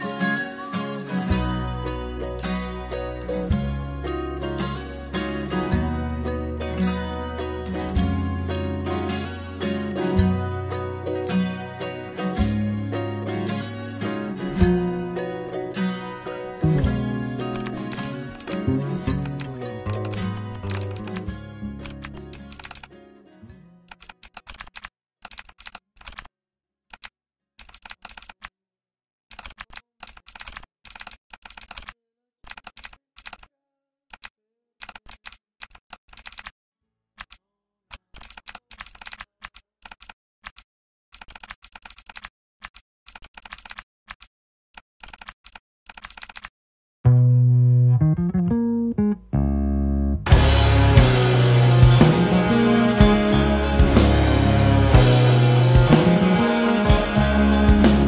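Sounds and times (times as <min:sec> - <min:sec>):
loud music with bass and guitar: 0:01.3 - 0:22.0, 0:47.1 - 0:58.0
keyboard typing clicks: 0:17.5 - 0:22.9, 0:23.9 - 0:26.3, 0:26.9 - 0:28.5, 0:29.3 - 0:33.5, 0:34.1 - 0:36.5, 0:37.2 - 0:44.3, 0:45.0 - 0:46.5.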